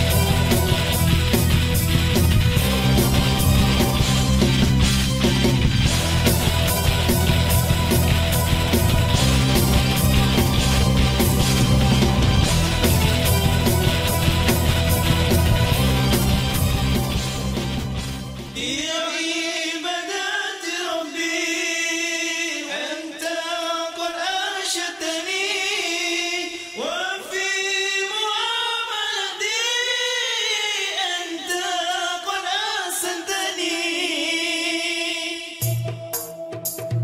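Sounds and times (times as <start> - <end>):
group singing in harmony: 0.0 - 28.3.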